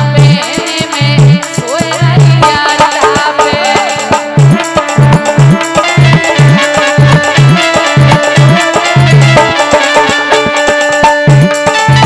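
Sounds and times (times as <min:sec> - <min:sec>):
hand drum beating: 0:00.0 - 0:12.0
rattling percussion: 0:00.0 - 0:12.0
melody line: 0:04.4 - 0:12.0.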